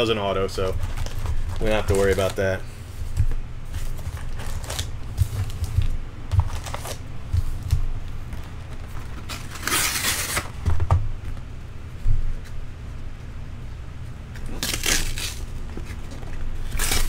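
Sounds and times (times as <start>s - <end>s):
cardboard scraping rustle: 0.5s - 7.7s.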